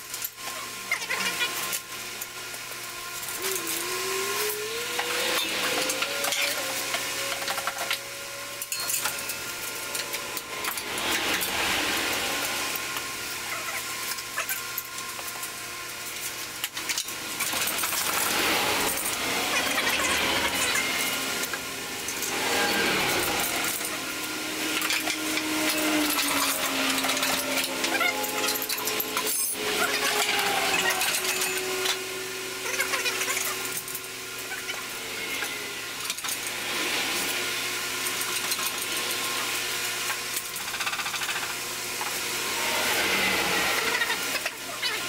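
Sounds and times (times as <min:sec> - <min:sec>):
hand tools clinking on metal: 0:07.3 - 0:10.8
rising squeak: 0:22.1 - 0:35.7.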